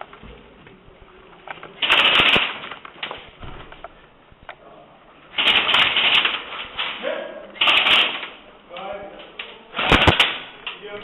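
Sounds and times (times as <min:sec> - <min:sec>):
airsoft gun rapid burst: 0:01.8 - 0:02.6, 0:05.4 - 0:06.4, 0:07.6 - 0:08.4, 0:09.8 - 0:10.5
footsteps: 0:02.6 - 0:04.2.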